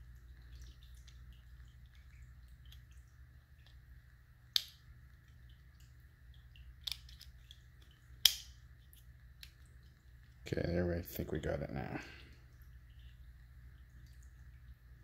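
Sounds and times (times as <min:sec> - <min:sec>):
sharp plastic snap: 0:08.2 - 0:08.6.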